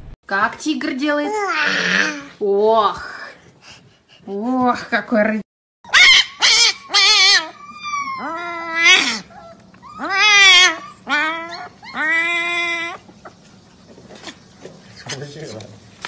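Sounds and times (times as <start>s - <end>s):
puppy howling and yelping: 5.8s - 13.5s.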